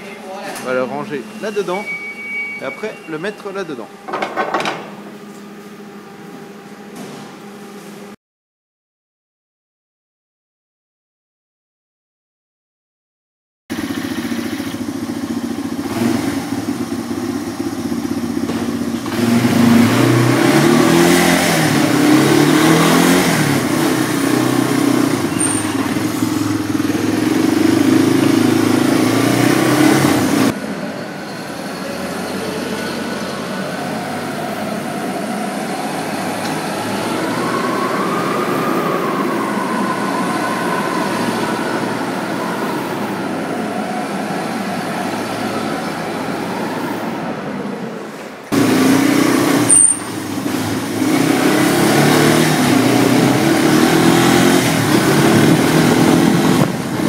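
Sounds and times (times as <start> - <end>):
quad bike engine revving: 13.7 - 30.8, 48.5 - 57.0.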